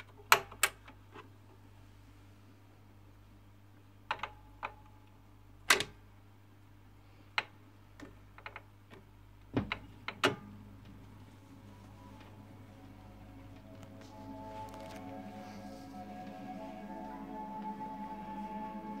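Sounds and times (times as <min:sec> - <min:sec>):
low hum: 0:10.4 - 0:19.0.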